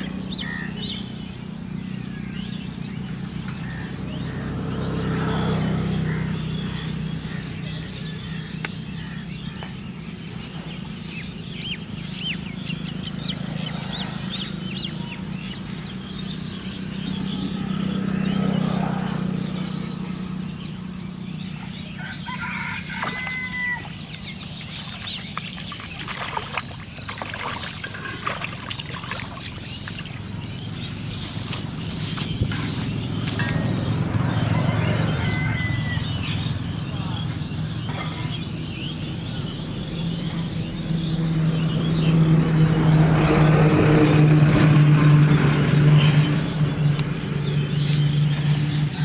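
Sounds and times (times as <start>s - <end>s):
small birds chirping: 0.0s - 49.0s
rooster crowing: 21.9s - 24.0s, 34.2s - 36.6s
fish splashing in water: 22.0s - 36.1s.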